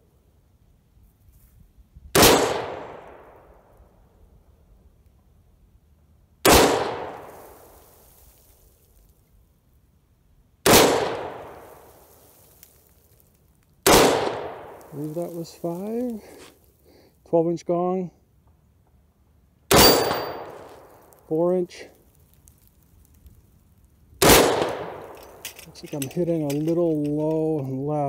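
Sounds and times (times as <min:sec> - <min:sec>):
rifle shots: 0:02.2 - 0:03.3, 0:06.4 - 0:07.5, 0:10.7 - 0:11.7, 0:13.8 - 0:15.3, 0:19.7 - 0:21.0, 0:24.2 - 0:25.4.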